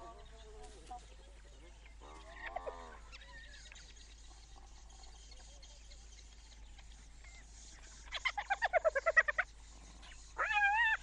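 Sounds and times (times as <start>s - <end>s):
insects chirping: 2.7s - 11.0s
hyena whining call: 10.4s - 11.0s.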